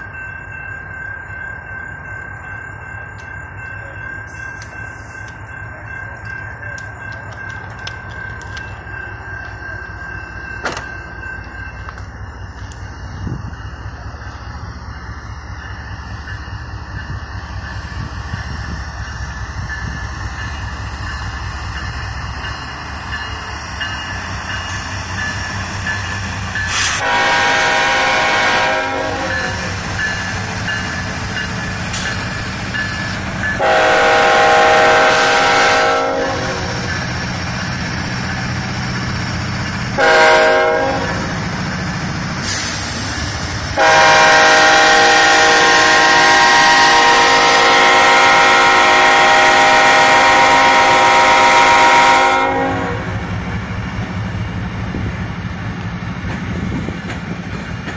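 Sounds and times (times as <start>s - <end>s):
locomotive air horn blasts: 26.7s - 29.8s, 33.6s - 36.9s, 40.0s - 41.3s, 43.8s - 53.2s.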